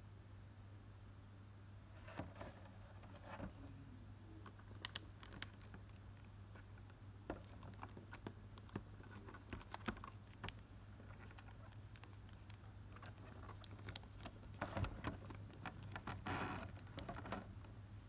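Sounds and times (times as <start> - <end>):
foil pack and plastic crinkling: 4.6 - 6.0, 7.3 - 17.4.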